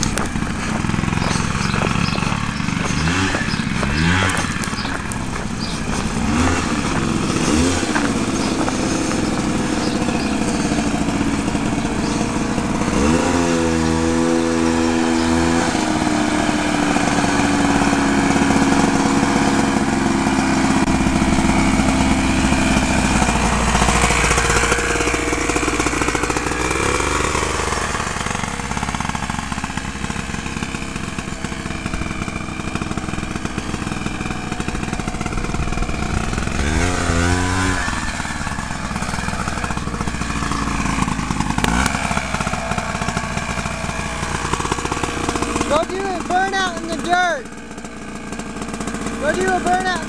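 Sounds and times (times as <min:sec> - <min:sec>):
two-stroke engine revving: 0:00.0 - 0:50.0.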